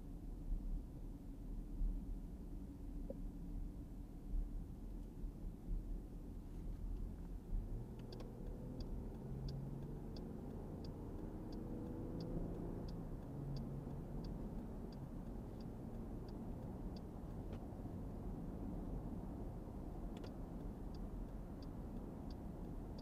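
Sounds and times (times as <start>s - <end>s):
road noise inside car: 0.0s - 23.0s
car engine accelerating: 7.0s - 23.0s
car turn signal clicking: 7.8s - 17.7s, 20.0s - 23.0s.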